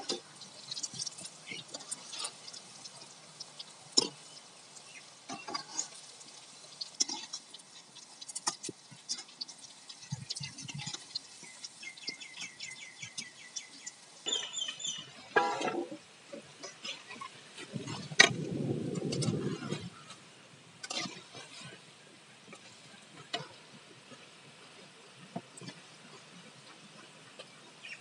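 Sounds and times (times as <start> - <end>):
food deep-frying in hot oil: 0.0 - 28.0
bird chirping: 11.3 - 15.3.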